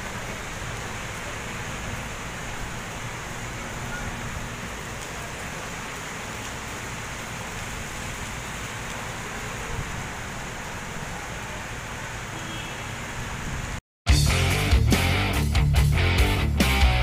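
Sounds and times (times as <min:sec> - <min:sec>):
heavy rain on street and cars: 0:00.0 - 0:13.8
strong wind: 0:09.3 - 0:11.7, 0:13.0 - 0:13.8.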